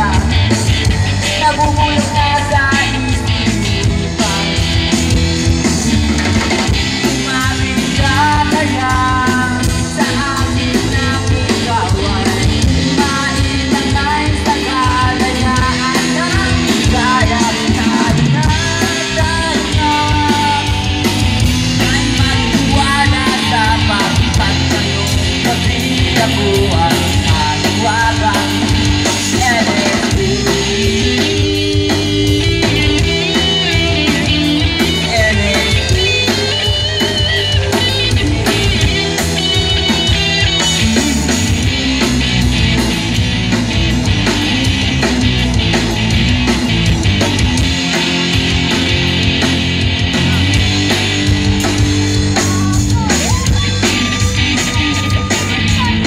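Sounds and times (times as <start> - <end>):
live rock band: 0.0 - 56.0.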